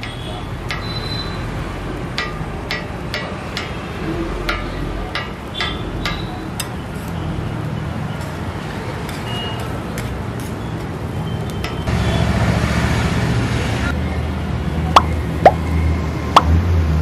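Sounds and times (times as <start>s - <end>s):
street traffic rumble: 0.0s - 17.0s
metal spatula scraping on griddle: 8.2s - 10.7s.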